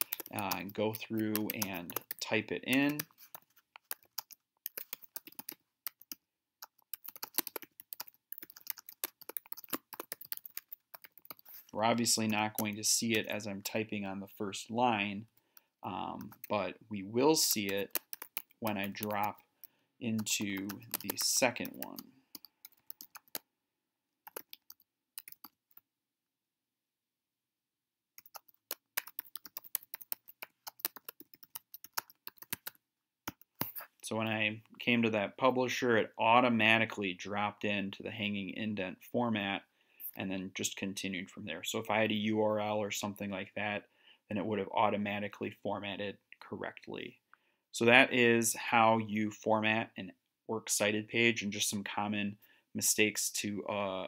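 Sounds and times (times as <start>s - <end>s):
typing on a keyboard: 0.0s - 13.3s, 17.5s - 19.4s, 20.1s - 23.4s, 24.3s - 25.8s, 28.2s - 33.8s.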